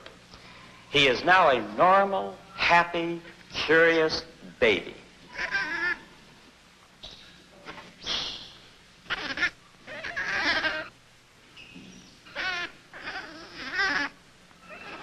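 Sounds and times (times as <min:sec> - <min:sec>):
monkey high wavering calls: 0:05.3 - 0:06.2, 0:07.0 - 0:11.0, 0:11.6 - 0:15.0.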